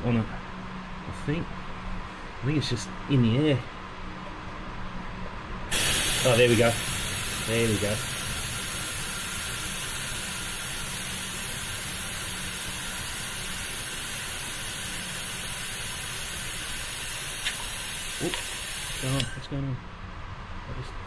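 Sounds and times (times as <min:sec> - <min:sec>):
oil extractor hissing: 0:05.7 - 0:19.4.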